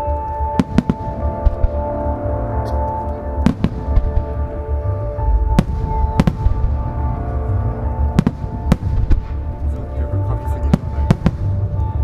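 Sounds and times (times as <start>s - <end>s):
music with long held notes: 0.0s - 12.0s
low rumble of explosions: 3.4s - 12.0s.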